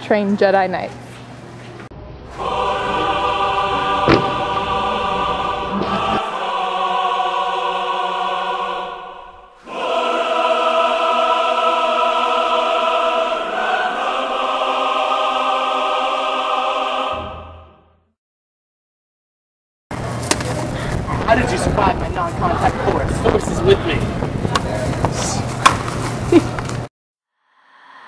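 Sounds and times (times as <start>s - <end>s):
choir singing held chords: 2.2s - 18.1s.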